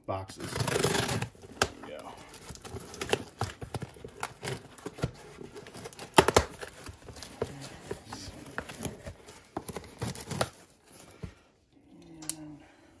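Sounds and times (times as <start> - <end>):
knife slitting packing tape: 0.4 - 1.7.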